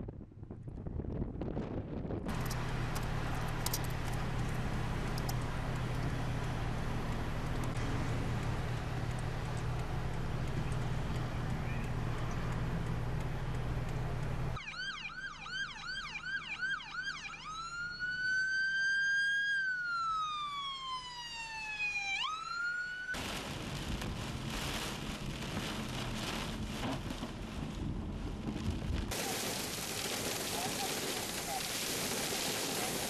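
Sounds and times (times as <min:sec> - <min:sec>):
heavy wind-driven rain: 0:02.2 - 0:11.2, 0:23.2 - 0:33.0
electronic siren yelp and wail: 0:14.6 - 0:23.2.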